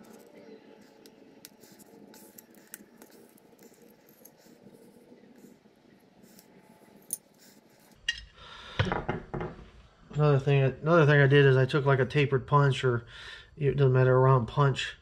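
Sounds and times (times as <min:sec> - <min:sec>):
screwdriver clicks and scrapes: 0:00.0 - 0:04.8.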